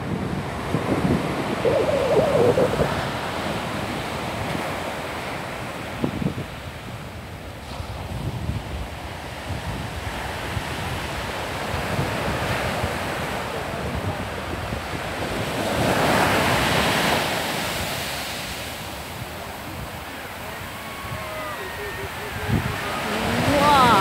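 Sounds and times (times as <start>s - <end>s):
surf breaking on beach: 0.0s - 24.0s
wind buffeting microphone: 0.0s - 24.0s
big wave crashing: 15.7s - 24.0s.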